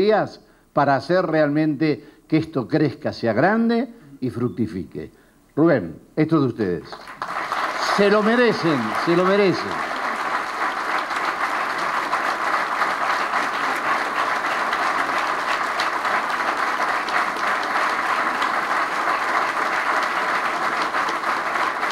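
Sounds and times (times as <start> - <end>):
audience applauding: 6.9 - 21.9.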